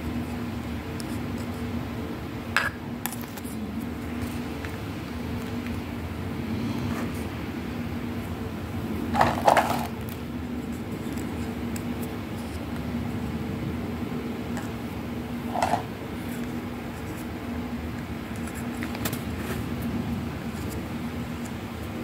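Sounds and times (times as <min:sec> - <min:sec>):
steady low hum: 0:00.0 - 0:22.0
plastic toy cups clacking: 0:09.2 - 0:10.0, 0:15.5 - 0:15.9.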